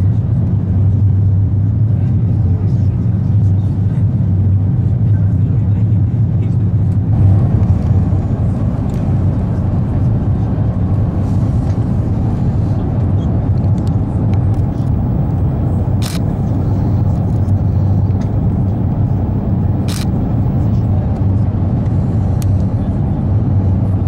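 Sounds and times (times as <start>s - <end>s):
airplane cabin low rumble: 0.0s - 24.0s.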